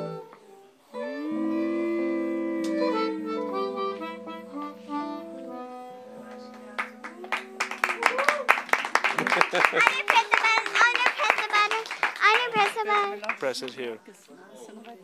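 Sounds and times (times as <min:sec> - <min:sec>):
harmonica: 0:00.0 - 0:07.7
tenor saxophone: 0:00.0 - 0:09.4
hand clapping: 0:06.2 - 0:13.8.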